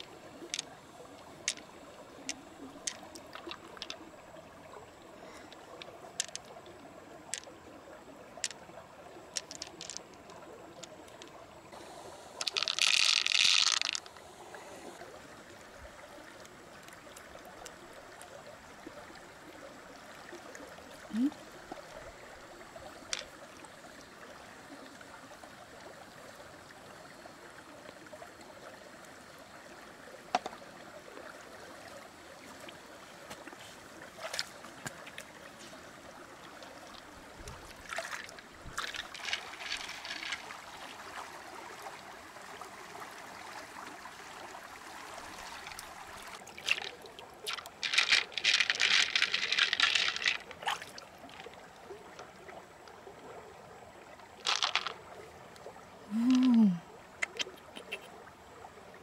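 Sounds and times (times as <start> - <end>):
small clicks and rattles: 0.0 - 1.7, 2.3 - 4.0, 5.4 - 6.6, 9.3 - 11.4, 12.4 - 14.1, 38.0 - 40.5, 46.6 - 50.6, 54.4 - 55.0
creek water flowing over stones: 0.0 - 59.0.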